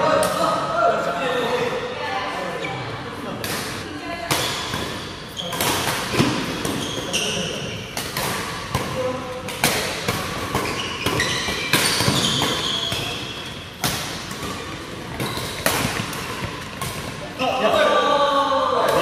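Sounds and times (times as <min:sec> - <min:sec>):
shoes squeaking on floor: 0:05.3 - 0:05.8, 0:06.5 - 0:08.0, 0:10.6 - 0:13.8, 0:14.4 - 0:16.8
racket hitting shuttlecock: 0:08.0 - 0:17.2.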